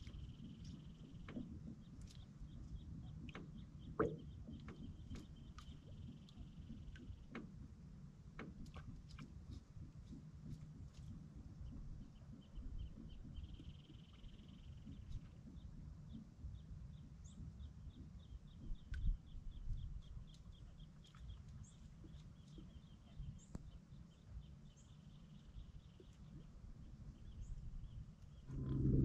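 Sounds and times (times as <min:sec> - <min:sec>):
low rumble: 0:28.4 - 0:29.0.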